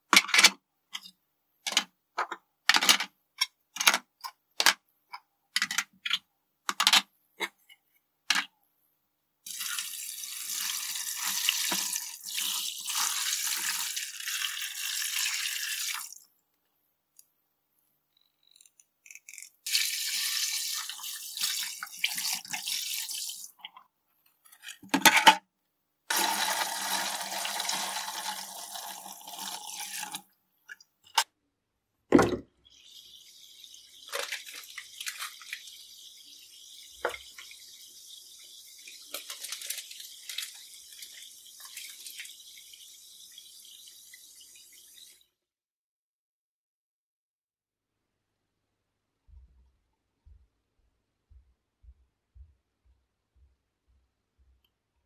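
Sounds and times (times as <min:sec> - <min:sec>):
plastic parts clattering: 0:00.1 - 0:04.8, 0:05.5 - 0:07.7, 0:24.4 - 0:25.4, 0:34.1 - 0:35.6, 0:39.0 - 0:40.6
water running over parts: 0:32.7 - 0:45.2.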